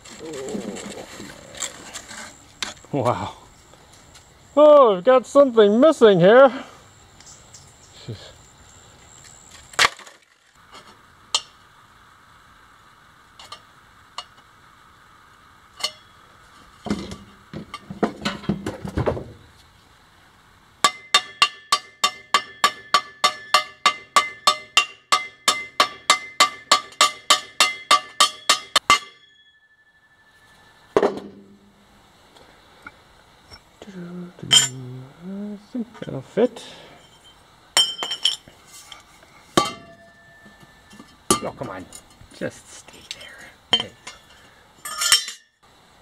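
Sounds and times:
hammer striking ringing metal tube: 0:20.8 - 0:30.0.

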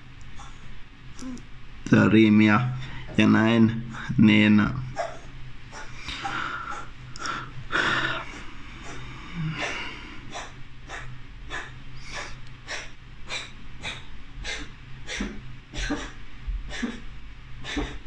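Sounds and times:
dog snorting breaths: 0:05.0 - 0:17.0, 0:17.6 - 0:18.0.

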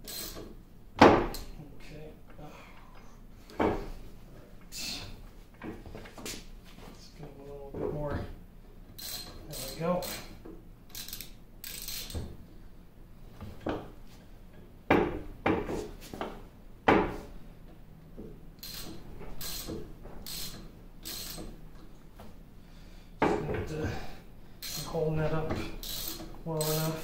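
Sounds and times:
ratchet wrench clicking: 0:00.0 - 0:00.6, 0:09.0 - 0:12.2, 0:18.6 - 0:21.6, 0:24.6 - 0:25.0, 0:25.8 - 0:27.0.

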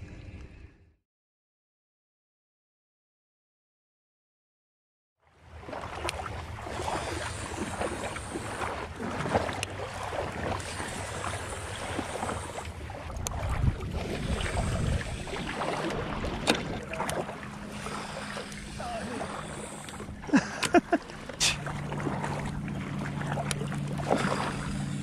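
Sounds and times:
water slapping against boat: 0:05.4 - 0:25.0
wind on microphone: 0:13.0 - 0:17.0.

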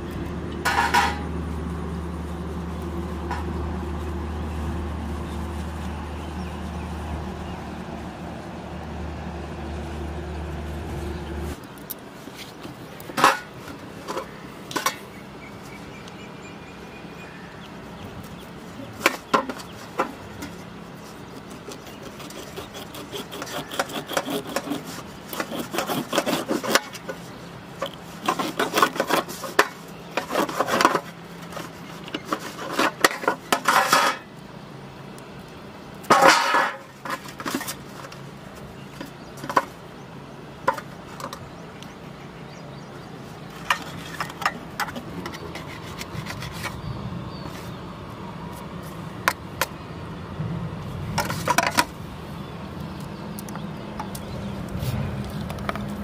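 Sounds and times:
knife scraping fish in metal bowl: 0:21.2 - 0:27.2, 0:27.8 - 0:34.2, 0:43.6 - 0:46.8.

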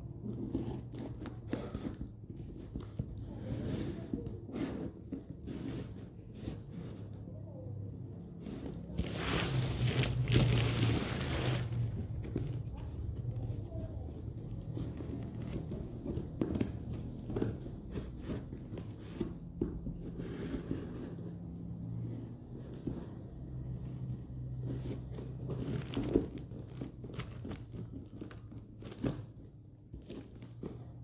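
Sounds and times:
scissors snipping and scraping cardboard: 0:00.2 - 0:06.9
plastic wrapping tearing and crinkling: 0:09.0 - 0:11.9.

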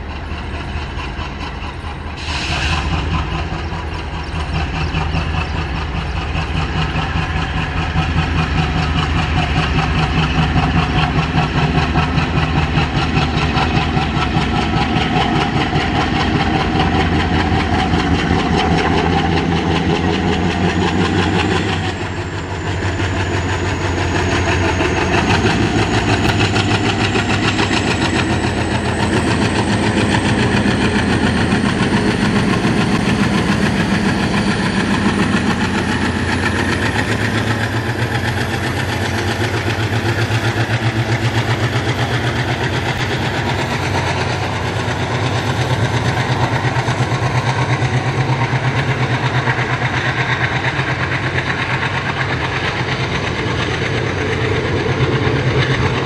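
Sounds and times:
diesel locomotive engine chugging: 0:00.0 - 0:56.0.

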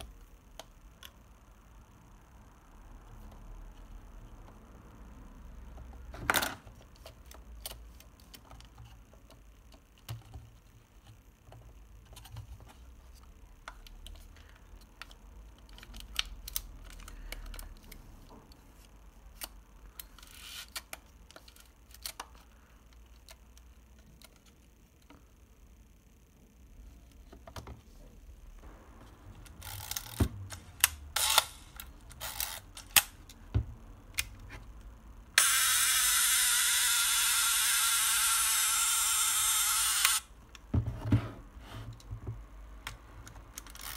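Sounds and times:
camera mechanism clicking: 0:29.6 - 0:33.1, 0:35.4 - 0:40.2.

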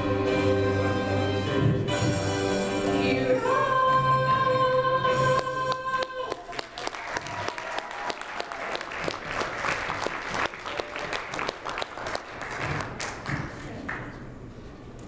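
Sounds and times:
audience applauding: 0:05.7 - 0:14.2.

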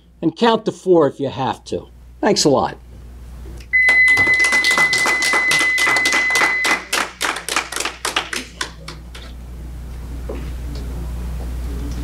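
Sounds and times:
timer steady high beep: 0:03.7 - 0:06.9
people clapping: 0:03.8 - 0:09.3.

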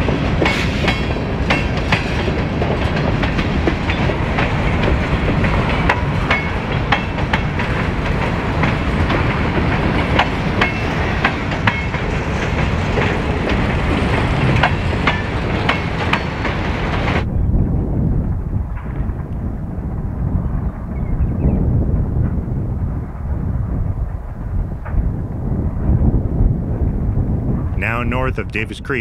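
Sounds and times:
wheels clicking over rail joints: 0:00.0 - 0:17.2
freight train rumbling past: 0:00.0 - 0:29.0.

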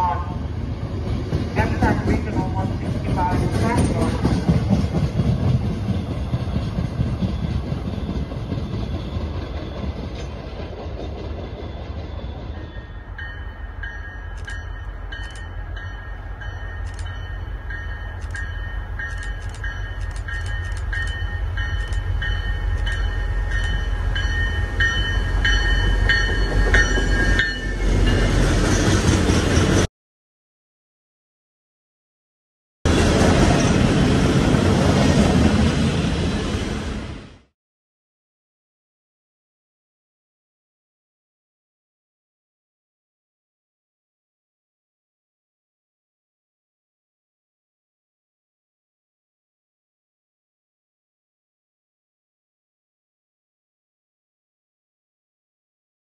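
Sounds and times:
commuter train rumbling on rails: 0:00.0 - 0:29.9, 0:32.9 - 0:37.5
passing train rumbling: 0:00.0 - 0:29.9, 0:32.9 - 0:37.5
clicks of train wheels: 0:01.2 - 0:11.6, 0:16.5 - 0:17.4, 0:18.0 - 0:23.9
high ringing tones: 0:12.5 - 0:28.4.

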